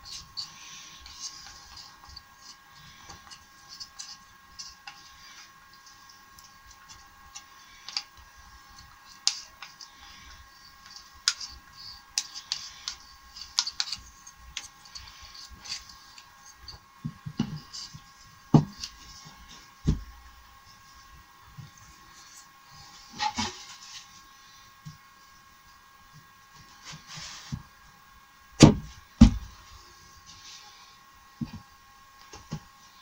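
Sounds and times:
wooden stick clicking and scraping: 0.0 - 16.8.

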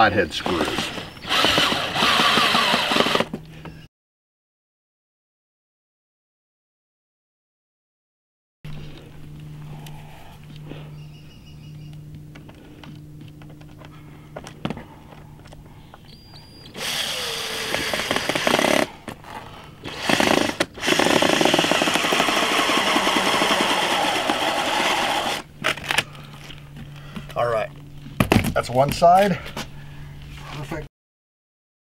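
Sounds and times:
cordless drill driving screws: 0.6 - 3.3, 16.8 - 18.9, 19.8 - 25.4
faint low hum: 8.7 - 17.7.

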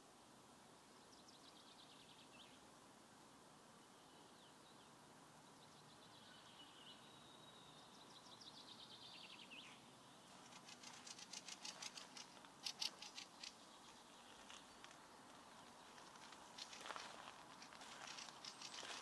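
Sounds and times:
faint birdsong: 0.0 - 19.0
rapid sharp dry clicks: 10.4 - 13.6, 16.2 - 19.0.

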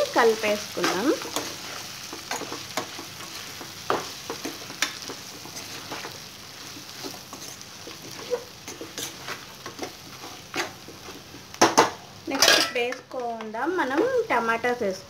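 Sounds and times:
chicken sizzling in a pan: 0.0 - 15.0
steel spoon scraping a pan: 0.7 - 11.5, 12.3 - 12.9.

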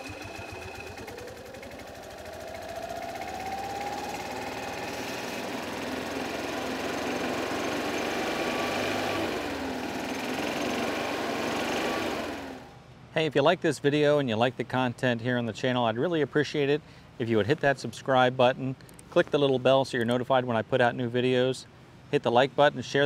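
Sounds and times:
small engine running: 0.0 - 12.8.

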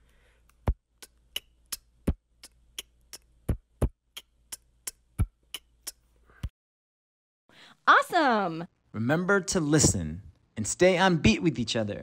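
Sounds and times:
drum beat: 3.5 - 4.0.

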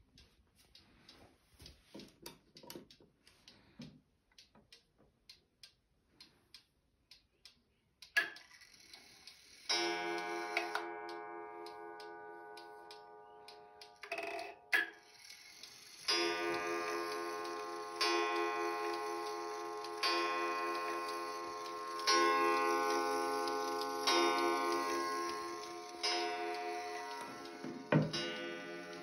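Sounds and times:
clock hand clicks: 0.0 - 29.0
clock ticking: 0.0 - 29.0
clock gong striking: 16.1 - 29.0.

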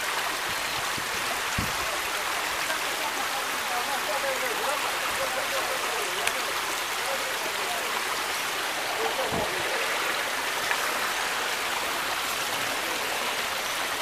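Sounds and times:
water runoff rushing: 0.0 - 14.0.

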